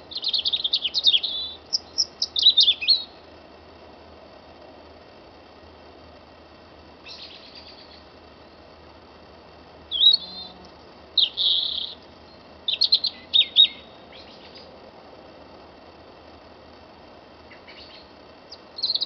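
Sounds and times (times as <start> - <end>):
small songbirds calling: 0.0 - 3.3, 7.0 - 8.8, 9.8 - 14.8, 17.4 - 19.0
faint steady background hiss: 0.0 - 19.0.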